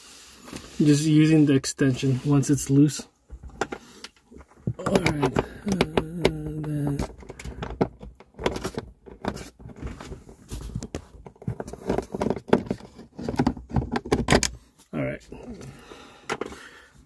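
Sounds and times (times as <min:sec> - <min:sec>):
socket clicking and rattling: 0:04.7 - 0:09.9, 0:10.8 - 0:14.6.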